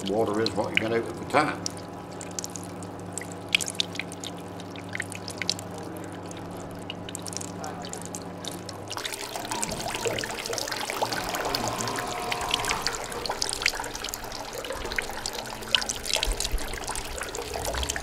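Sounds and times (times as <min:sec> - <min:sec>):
liquid dripping and trickling: 0:00.0 - 0:18.0
steady fuller trickle: 0:00.0 - 0:18.0
steady low hum: 0:00.0 - 0:18.0.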